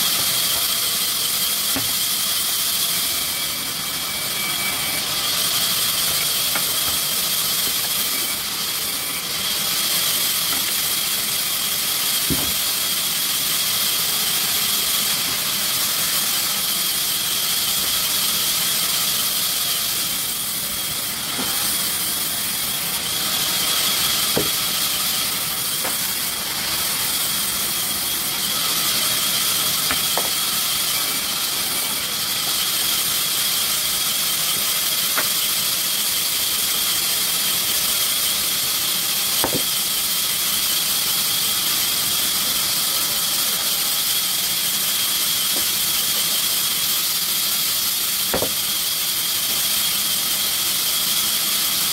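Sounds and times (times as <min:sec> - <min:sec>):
saw squealing through wood: 0:00.0 - 0:51.9.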